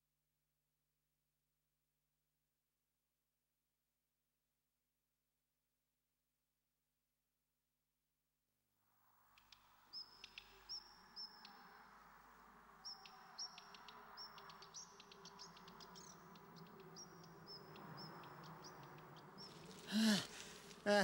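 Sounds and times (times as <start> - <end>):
faint outdoor ambience: 8.9 - 21.0
birds chirping: 12.8 - 21.0.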